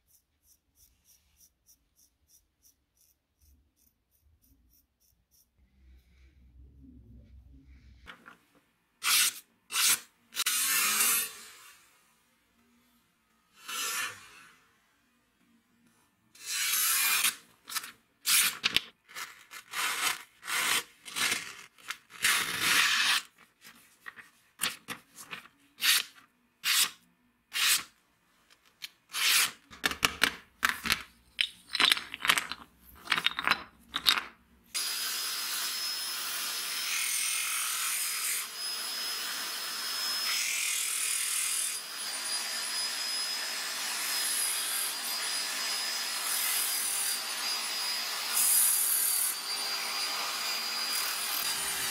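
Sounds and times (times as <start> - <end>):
electric drill whining: 38.4 - 51.9.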